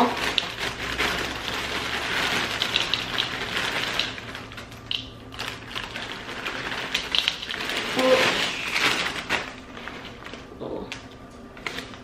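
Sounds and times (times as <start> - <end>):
cereal pouring into glass bowl: 0.0 - 9.2.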